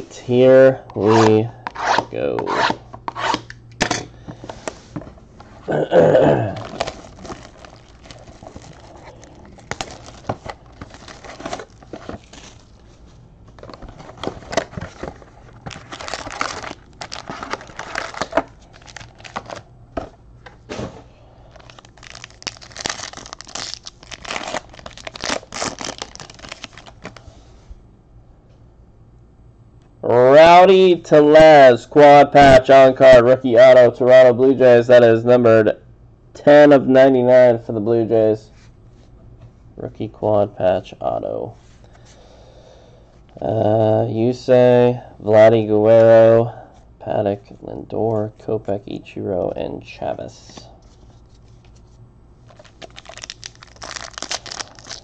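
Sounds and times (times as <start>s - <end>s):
foil packs tearing and crinkling: 6.4s - 12.8s, 14.0s - 19.6s, 21.5s - 27.2s, 52.5s - 55.0s
cardboard and cards handled: 6.6s - 20.1s.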